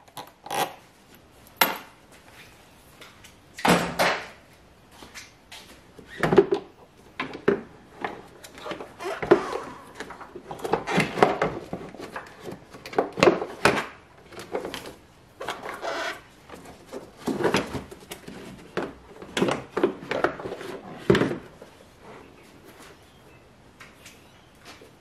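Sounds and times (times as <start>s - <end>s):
plastic scraping: 7.4s - 21.5s.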